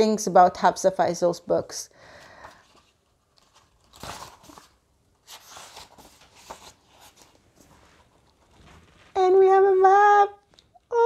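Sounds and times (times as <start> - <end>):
book pages rustling: 2.3 - 9.2.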